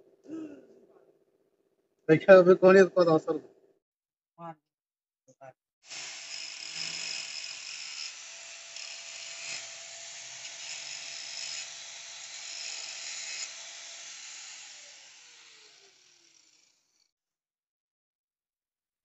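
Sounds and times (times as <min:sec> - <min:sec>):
angle grinder grinding steel: 0:05.9 - 0:17.0.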